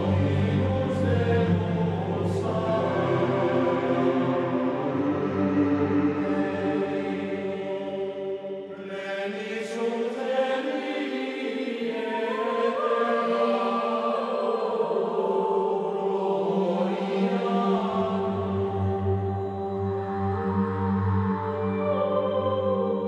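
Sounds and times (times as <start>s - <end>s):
slow held chords music: 0.0s - 7.9s, 17.8s - 23.0s.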